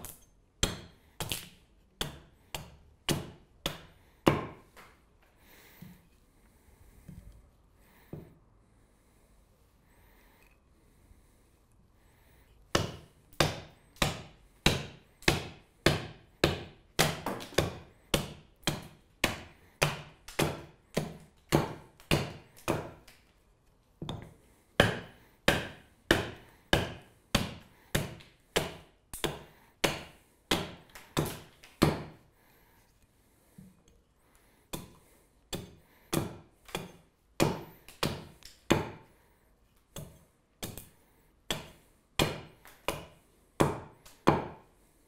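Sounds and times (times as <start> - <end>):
axe chopping wood: 0.0 - 4.9, 12.7 - 23.1, 24.0 - 32.2, 34.7 - 39.0, 40.0 - 40.9, 41.5 - 44.6.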